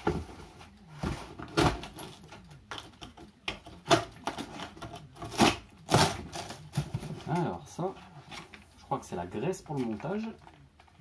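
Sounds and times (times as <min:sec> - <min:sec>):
cardboard rustling and scraping: 0:00.0 - 0:02.5, 0:03.8 - 0:08.8.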